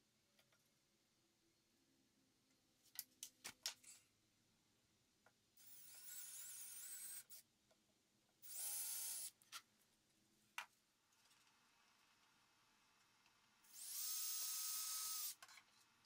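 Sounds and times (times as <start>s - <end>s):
power drill boring into wood: 5.6s - 7.4s, 8.4s - 9.3s, 13.7s - 15.4s.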